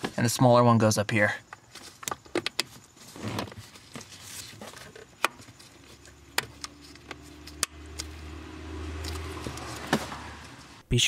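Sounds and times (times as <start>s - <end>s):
rustling and handling noise: 1.1s - 8.2s.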